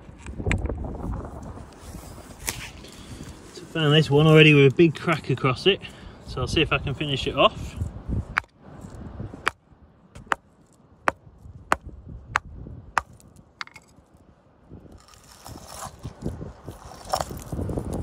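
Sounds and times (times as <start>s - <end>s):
hammer striking rock: 10.2s - 10.4s, 11.1s - 13.8s.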